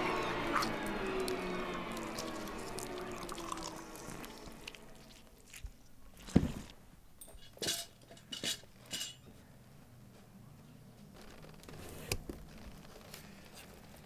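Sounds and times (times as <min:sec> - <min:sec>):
metallic clinks and rattles: 0:07.2 - 0:09.2.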